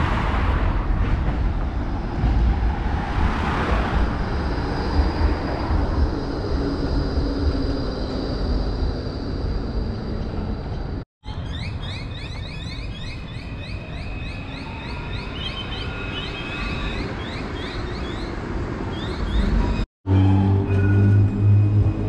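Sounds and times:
traffic rumble: 0:00.0 - 0:11.4.

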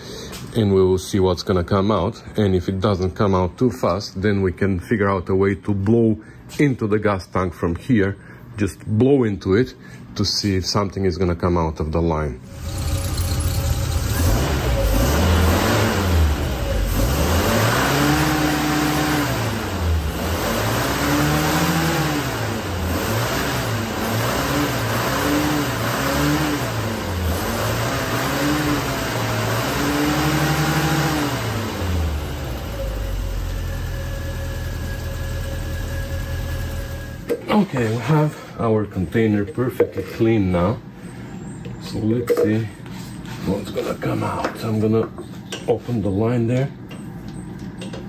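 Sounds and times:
car engine revving and idling: 0:12.4 - 0:37.3.

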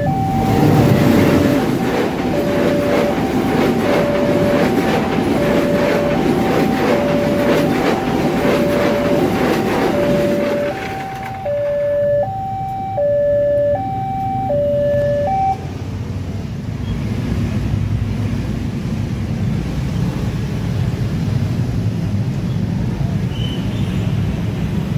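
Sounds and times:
level crossing alarm two-tone: 0:00.0 - 0:15.7
train carriages clattering: 0:00.1 - 0:15.6.

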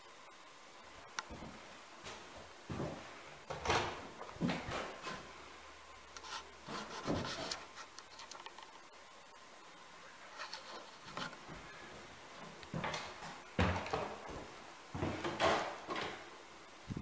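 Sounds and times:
wooden knocks and scrapes: 0:06.7 - 0:07.7.

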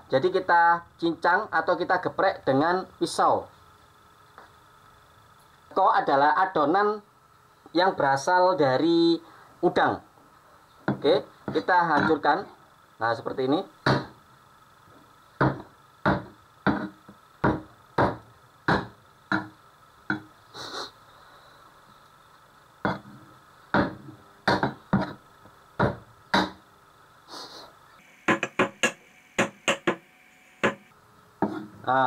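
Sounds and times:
cleaver chopping on wooden board: 0:13.8 - 0:14.1, 0:15.4 - 0:19.5, 0:22.9 - 0:23.1, 0:23.8 - 0:25.2, 0:25.8 - 0:26.6.

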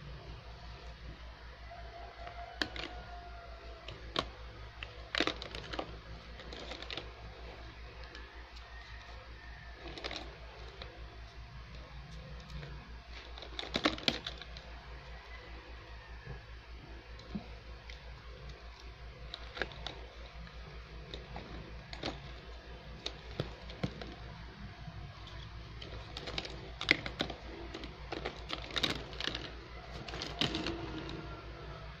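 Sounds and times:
steady low hum: 0:00.0 - 0:32.0
plastic toy pieces clicking together: 0:02.6 - 0:03.1, 0:03.8 - 0:07.2, 0:09.8 - 0:10.9, 0:12.4 - 0:14.7, 0:18.7 - 0:24.4, 0:25.2 - 0:31.3.

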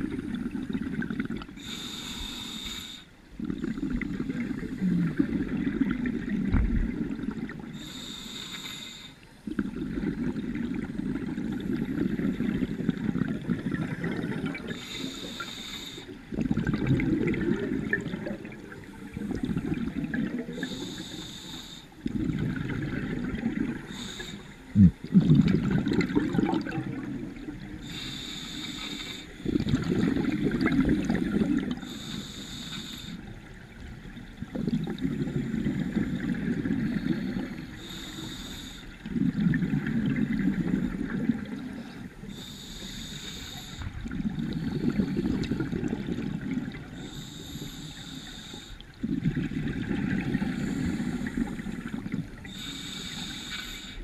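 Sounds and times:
exhaled air bubbling: 0:00.0 - 0:08.4, 0:09.0 - 0:54.0
regulator inhale hiss: 0:01.6 - 0:03.2, 0:07.7 - 0:09.4, 0:14.5 - 0:16.2, 0:18.9 - 0:22.1, 0:23.6 - 0:24.8, 0:27.6 - 0:29.6, 0:31.8 - 0:33.4, 0:35.3 - 0:39.1, 0:41.6 - 0:45.8, 0:46.7 - 0:49.0, 0:50.4 - 0:54.0.

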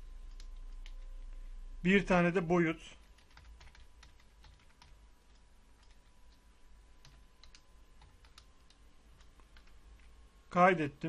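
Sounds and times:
typing on computer keyboard: 0:03.0 - 0:06.4, 0:07.0 - 0:10.1.

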